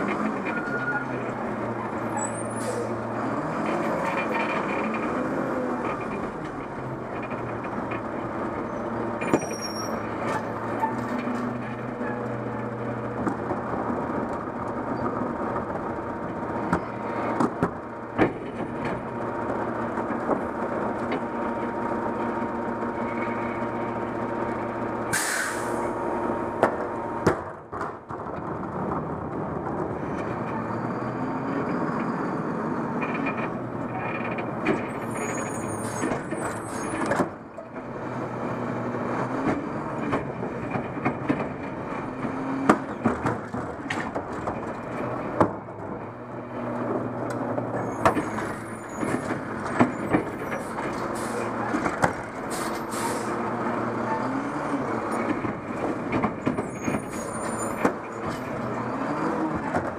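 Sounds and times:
diesel engine revving: 0:00.0 - 0:27.4, 0:28.5 - 0:59.9
short air hisses: 0:25.1 - 0:25.8.

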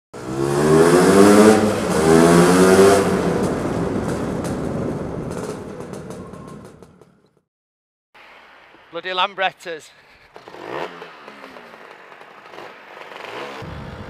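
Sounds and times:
scooter engine revving: 0:00.2 - 0:07.2, 0:10.2 - 0:14.0
engine popping: 0:01.2 - 0:07.3, 0:10.3 - 0:14.0.

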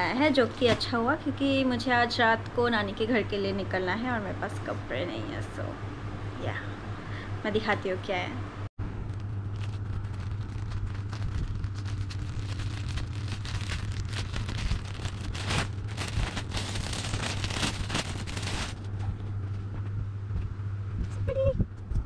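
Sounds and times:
low hum: 0:00.0 - 0:22.0
plastic bag crinkling: 0:09.1 - 0:18.9.

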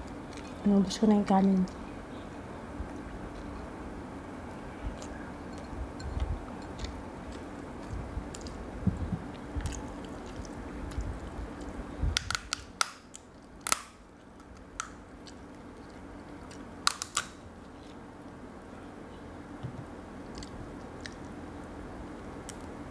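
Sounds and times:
mouth chewing: 0:04.9 - 0:11.8
lobster shell cracking: 0:11.6 - 0:15.5, 0:16.4 - 0:17.4.

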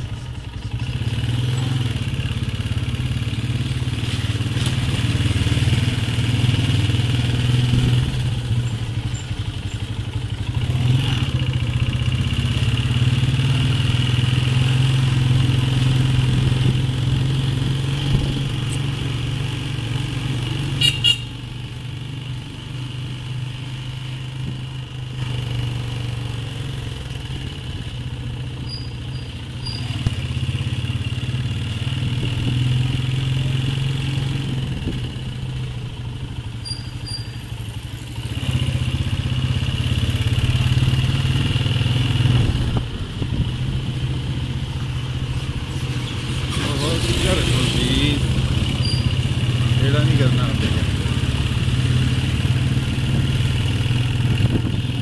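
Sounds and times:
small motorcycle engine running: 0:46.5 - 0:55.0.

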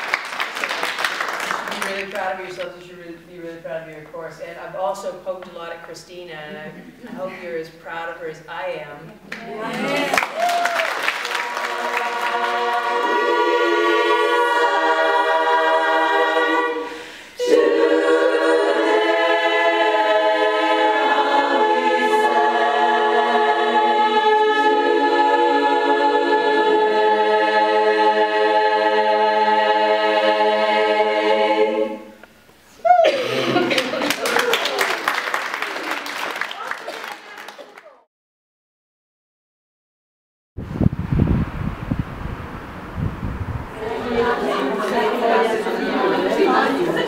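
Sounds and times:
women's choir singing chords: 0:09.5 - 0:32.3, 0:43.7 - 0:47.0.

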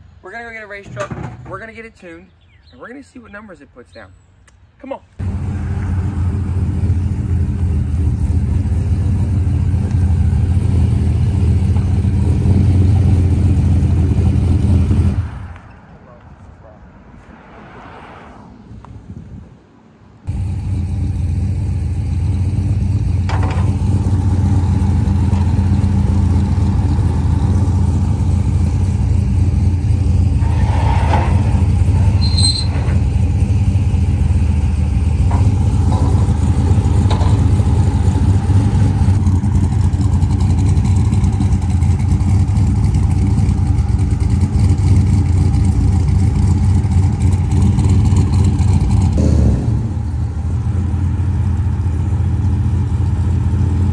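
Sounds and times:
metal ramps clanking: 0:00.8 - 0:01.8, 0:23.2 - 0:25.8, 0:30.4 - 0:33.4, 0:35.0 - 0:38.6
truck engine idling: 0:05.2 - 0:15.2, 0:20.3 - 0:53.9.

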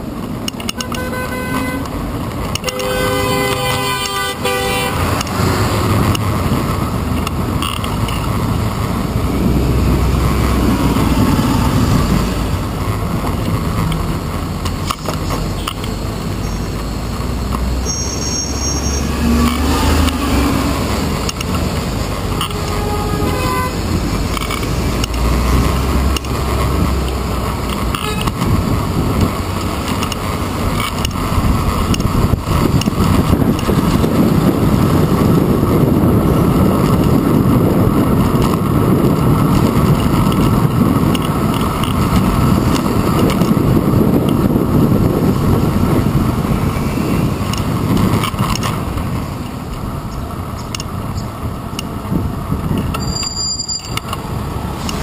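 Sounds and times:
bus and car engines: 0:00.0 - 0:55.0
road rumble: 0:00.0 - 0:55.0
car horn: 0:00.7 - 0:02.0, 0:02.6 - 0:05.2, 0:22.4 - 0:23.9, 0:28.0 - 0:28.3
wind buffeting: 0:04.8 - 0:17.9, 0:19.0 - 0:53.1.

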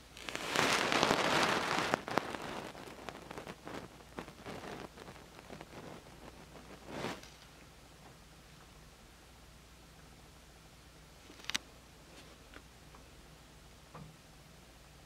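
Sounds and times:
brush rustling on paper: 0:00.0 - 0:07.5.

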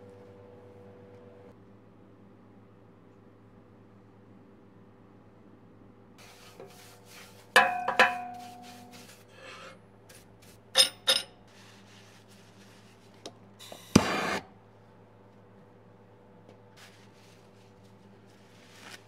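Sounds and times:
metal clanks on a stove: 0:07.6 - 0:08.9, 0:10.8 - 0:11.4.

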